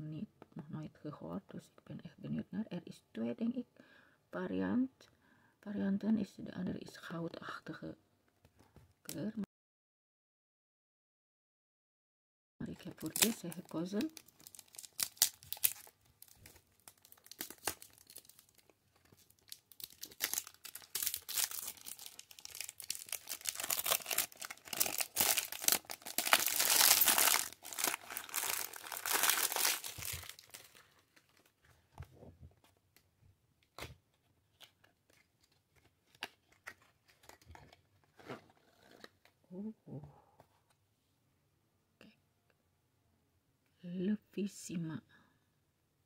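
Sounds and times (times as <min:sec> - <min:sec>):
plastic wrapping tearing and crinkling: 0:12.8 - 0:31.6.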